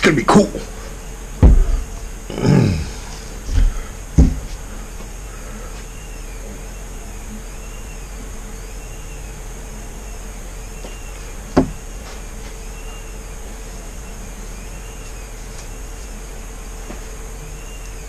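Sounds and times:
steady low hum: 0.0s - 18.0s
objects thumping on a table: 1.4s - 2.0s, 3.6s - 4.6s, 11.6s - 11.8s.

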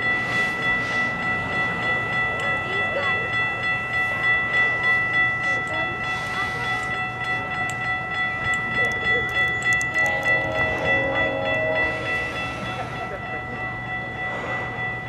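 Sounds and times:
level crossing warning bell: 0.0s - 15.0s
train horn chord: 10.0s - 13.0s.

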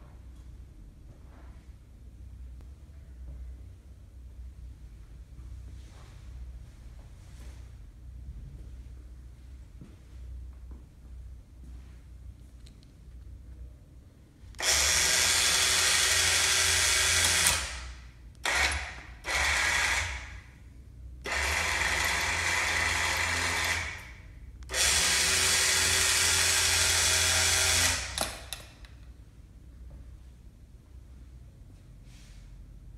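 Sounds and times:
electric chain hoist motor running: 14.6s - 20.4s, 21.2s - 28.6s.

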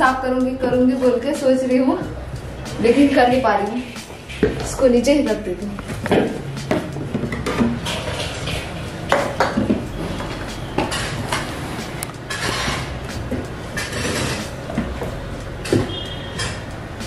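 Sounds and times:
bottles knocking and clinking: 5.8s - 11.5s.

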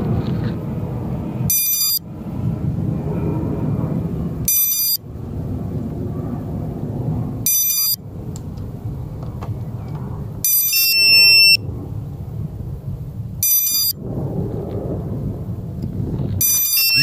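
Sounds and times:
steady low rumble: 0.0s - 17.0s
high-pitched electronic beeps: 1.5s - 2.0s, 4.5s - 5.0s, 7.5s - 8.0s, 10.4s - 11.6s, 13.4s - 14.0s, 16.4s - 17.0s.

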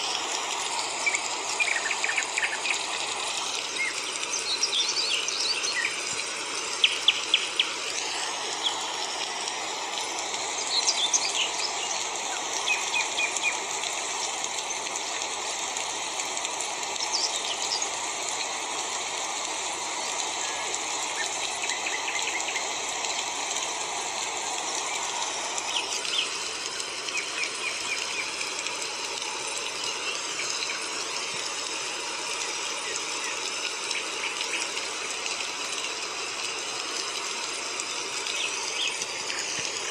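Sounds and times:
steady rushing hiss: 0.0s - 39.9s
birds chirping: 0.6s - 13.7s, 24.1s - 31.5s, 37.8s - 39.9s.

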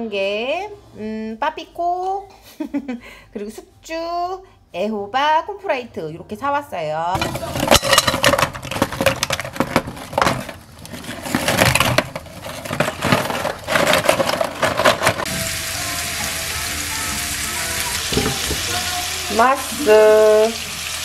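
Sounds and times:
crackling and clatter in pan: 7.2s - 15.6s
pork sizzling in frying pan: 15.2s - 21.0s
light background music: 15.3s - 20.9s.

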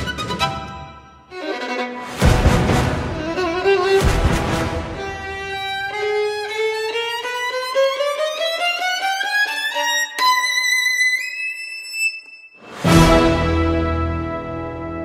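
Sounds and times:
background music rising notes: 2.0s - 5.9s, 12.6s - 15.0s.

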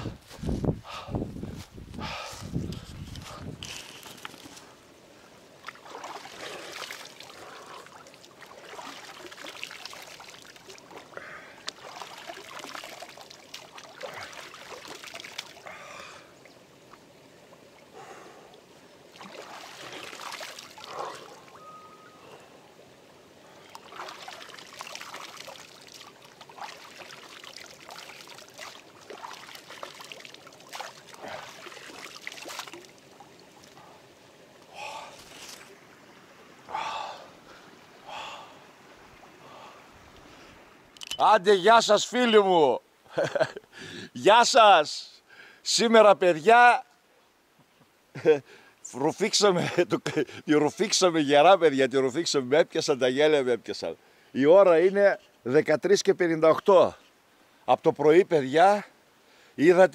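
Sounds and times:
creek trickling: 0.0s - 59.9s
hands splashing water: 5.6s - 15.6s, 19.1s - 21.4s, 23.7s - 33.0s.

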